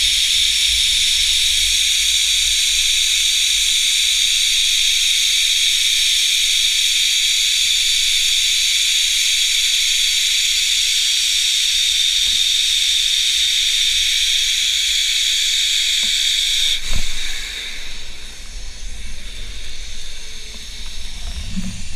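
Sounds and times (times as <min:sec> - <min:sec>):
wind rush: 0:21.0 - 0:21.9.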